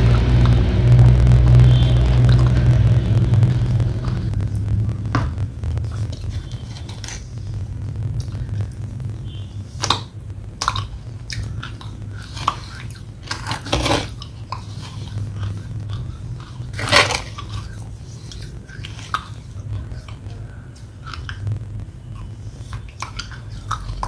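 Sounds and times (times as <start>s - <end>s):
low steady hum: 0.0s - 24.0s
chewing wet clay paste: 9.7s - 24.0s.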